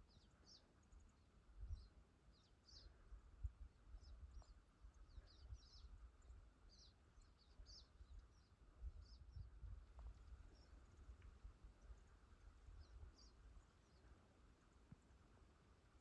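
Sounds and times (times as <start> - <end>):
low wind rumble on microphone: 1.5 - 13.6.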